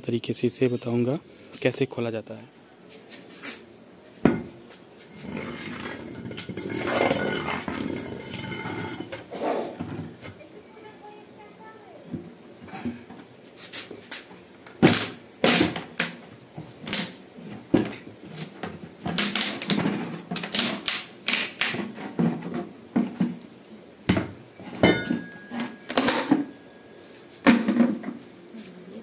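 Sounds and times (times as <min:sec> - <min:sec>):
plastic scraping: 0:05.1 - 0:10.2.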